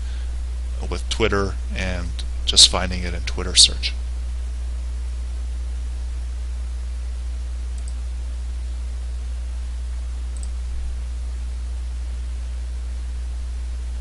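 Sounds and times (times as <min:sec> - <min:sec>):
low electrical hum: 0:00.0 - 0:14.0
microphone hiss: 0:00.0 - 0:14.0
faint ticks: 0:07.8 - 0:08.0.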